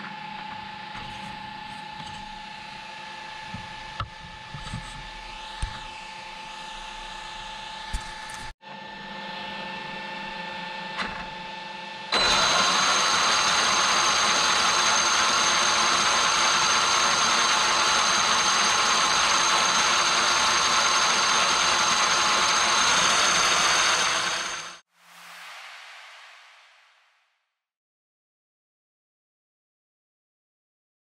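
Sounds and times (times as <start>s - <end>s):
electric motor whine with gear noise: 0.0s - 24.8s.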